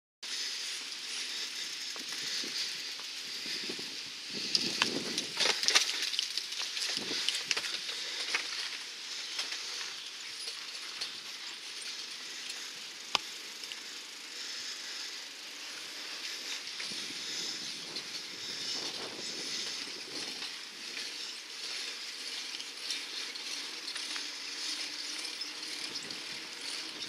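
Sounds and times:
bicycle tyres hissing: 0.2s - 27.0s
bike clattering: 0.3s - 27.0s
bike rattles and clicks: 0.3s - 27.0s.

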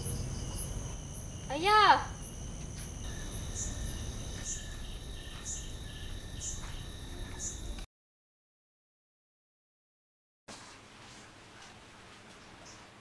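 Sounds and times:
insects trilling: 0.0s - 7.8s
cricket chirping: 0.0s - 7.9s.

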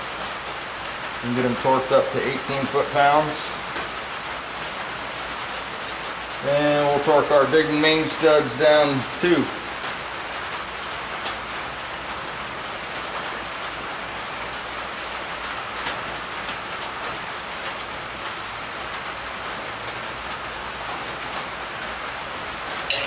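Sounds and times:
steady rain: 0.0s - 23.0s.

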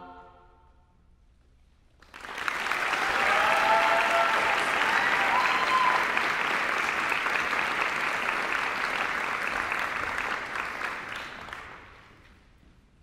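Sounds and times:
audience applauding: 2.0s - 12.3s.

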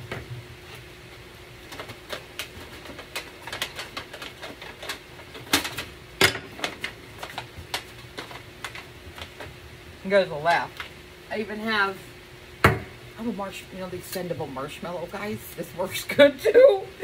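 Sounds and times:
aluminum sheet crinkling and popping: 0.0s - 11.0s.

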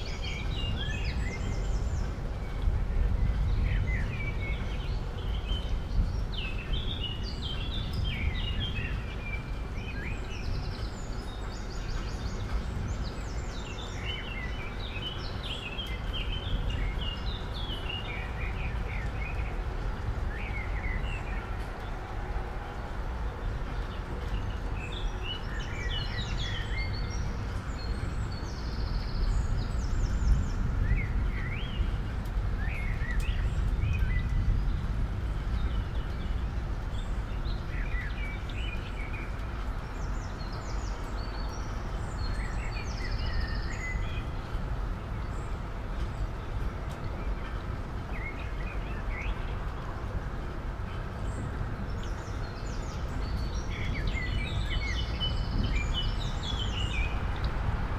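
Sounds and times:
small birds chirping: 23.3s - 57.7s.

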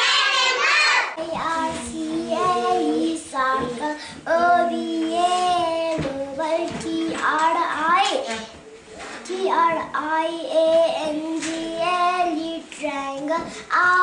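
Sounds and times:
children chanting in unison: 0.0s - 3.2s.

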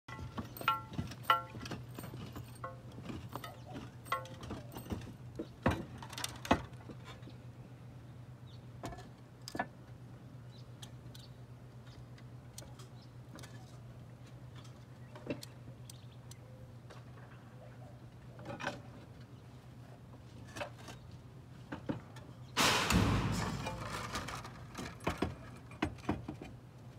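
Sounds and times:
clinks and knocks of roof tiles: 0.1s - 7.2s, 21.7s - 26.6s.

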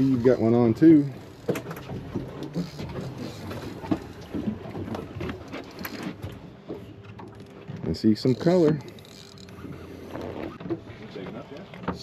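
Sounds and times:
fishing reel clicking: 8.3s - 9.7s.

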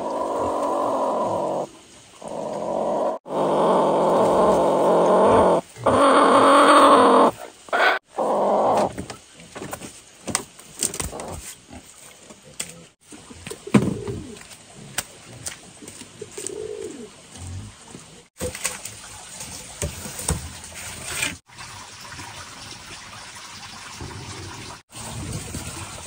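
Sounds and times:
hen squawking: 4.2s - 8.9s.

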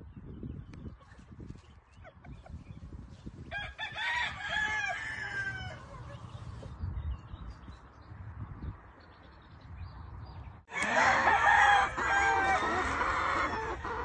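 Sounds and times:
rooster crowing: 3.5s - 5.9s, 10.7s - 14.0s.

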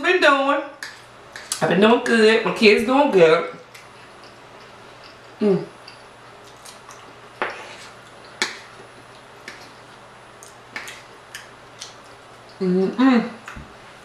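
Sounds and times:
person eating close to microphone: 3.6s - 12.6s.

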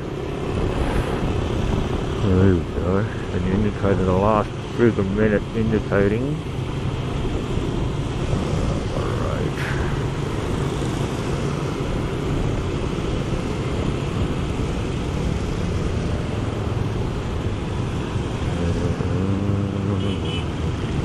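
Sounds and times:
wind noise: 0.0s - 3.4s
surrounding motorbikes: 0.0s - 21.0s
tyres on wet road: 0.0s - 21.0s.

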